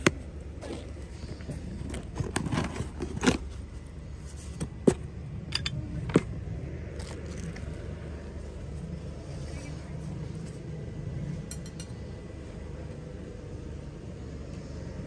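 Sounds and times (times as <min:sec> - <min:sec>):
rustling of small items: 0:00.6 - 0:05.0.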